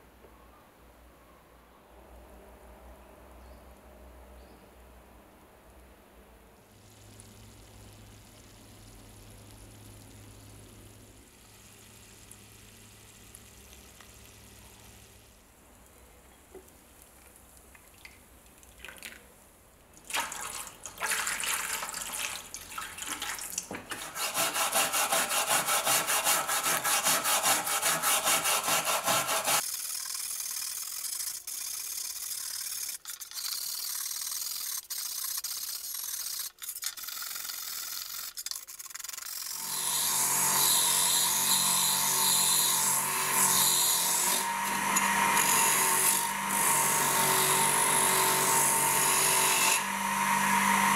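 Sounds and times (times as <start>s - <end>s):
faint fizzing: 6.7s - 23.8s
stiff brush scrubbing metal blade: 23.9s - 39.6s.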